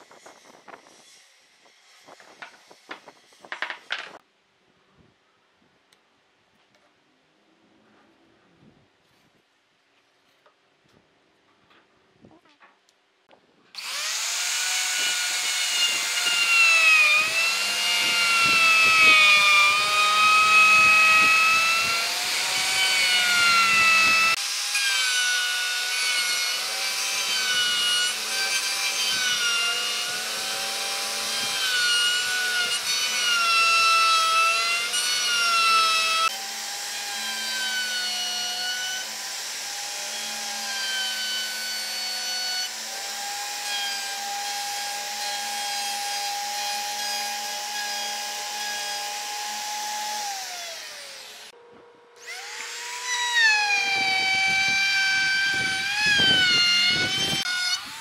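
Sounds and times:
electric router cutting wood: 13.8s - 51.5s, 52.2s - 58.0s.

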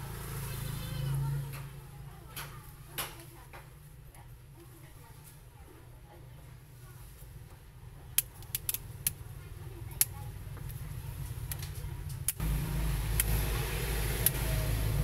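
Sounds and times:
plastic clips snapping: 8.2s - 9.2s.

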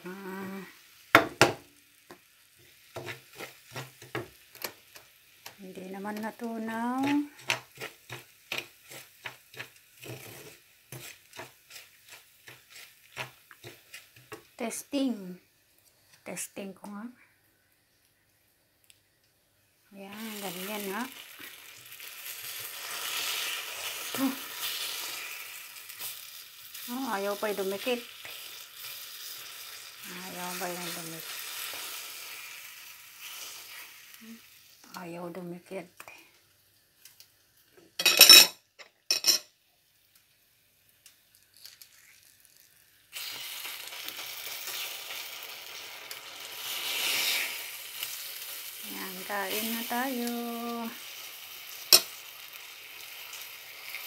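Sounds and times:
sugar sizzling in a frying pan: 0.0s - 17.2s, 19.6s - 54.0s
spatula scraping sugar in pan: 2.6s - 14.8s, 43.2s - 50.5s.

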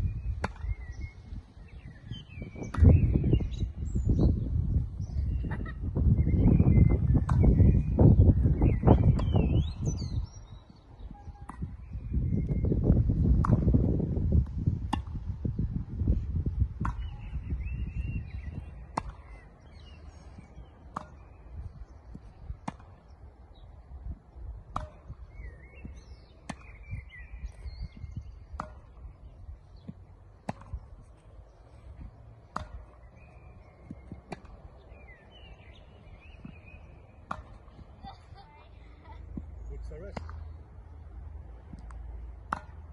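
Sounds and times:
birds chirping: 0.0s - 13.8s, 14.6s - 42.9s
tennis racket hitting ball: 14.8s - 15.2s, 18.6s - 19.4s, 20.4s - 21.4s, 22.1s - 23.1s, 24.6s - 25.4s, 28.4s - 33.0s, 33.7s - 35.6s, 36.2s - 38.0s, 41.7s - 42.9s.

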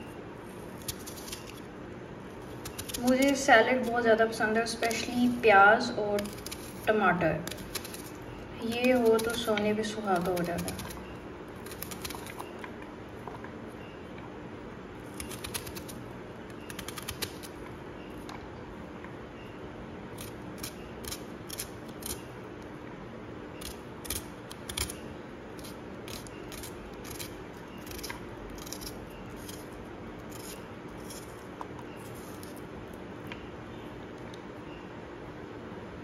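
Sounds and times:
knife cutting onion: 0.0s - 1.7s, 2.3s - 12.6s, 15.0s - 18.3s, 20.1s - 22.3s, 23.6s - 32.7s.

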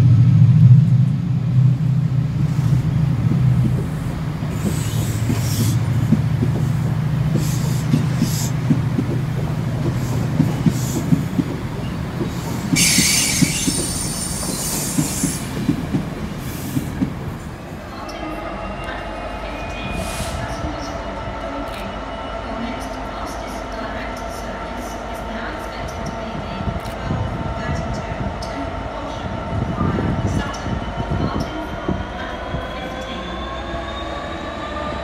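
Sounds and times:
diesel locomotive engine hum: 0.0s - 35.0s
train wheels clicking over rail joints: 3.3s - 17.3s
wheel flanges squealing: 11.8s - 15.2s.

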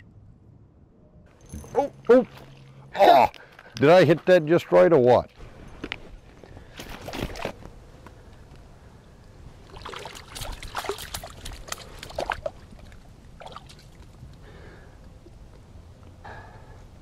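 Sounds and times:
fish flopping on wet ice: 9.7s - 14.2s.

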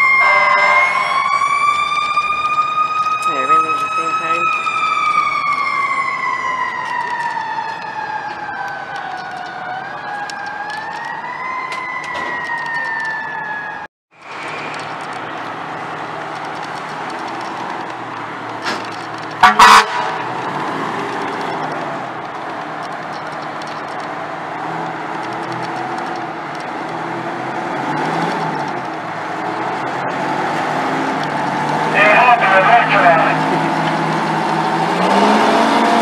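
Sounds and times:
fire truck siren winding down: 0.0s - 18.5s, 19.3s - 22.9s, 23.9s - 36.0s
fire truck engines idling: 14.3s - 20.5s, 28.6s - 34.7s
loud double horn blast: 19.4s - 20.3s.

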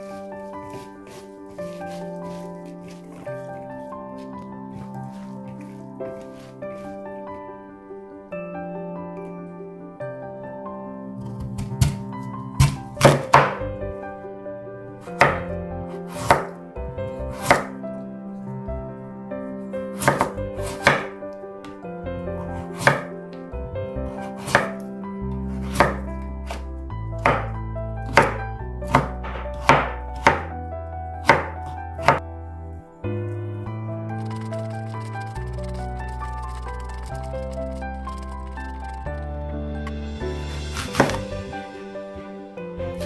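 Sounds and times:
soft background music: 0.0s - 43.0s
knife cutting on wooden board: 0.6s - 3.5s, 22.6s - 23.1s, 24.3s - 24.8s, 25.6s - 26.6s, 40.5s - 41.3s.

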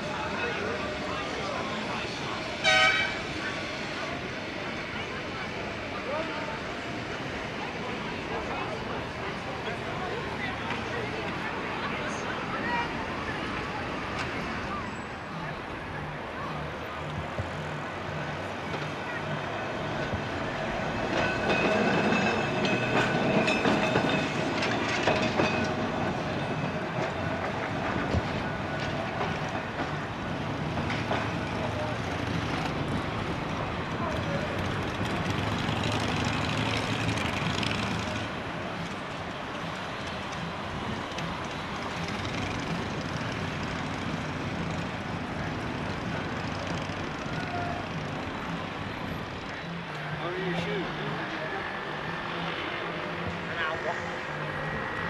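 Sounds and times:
street traffic noise: 0.0s - 55.0s
tram whine: 0.0s - 55.0s
tram wheels clicking over rail joints: 18.6s - 50.2s.

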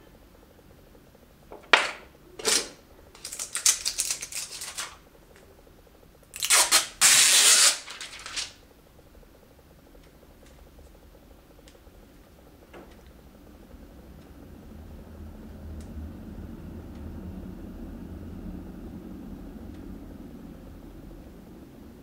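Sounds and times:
rustling of cables and plastic packaging: 2.4s - 5.0s, 6.3s - 8.6s.

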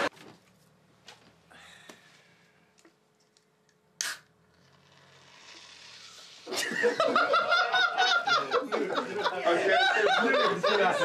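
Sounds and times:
beer can cracked open: 4.0s - 6.6s
men laughing: 6.5s - 11.0s.

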